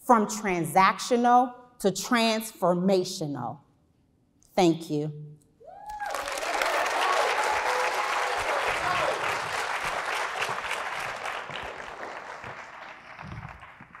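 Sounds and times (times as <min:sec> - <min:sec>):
whoops: 0:05.6 - 0:09.5
audience applauding: 0:05.9 - 0:14.0.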